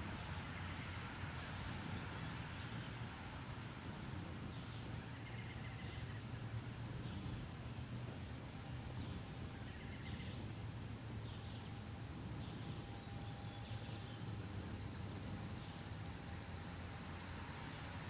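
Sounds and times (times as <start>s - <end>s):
low outdoor rumble: 0.0s - 18.0s
birds chirping: 3.8s - 18.0s.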